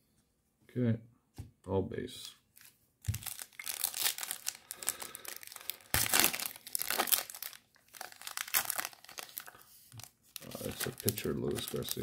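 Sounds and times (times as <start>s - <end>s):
foil wrapper tearing and crinkling: 3.1s - 12.0s.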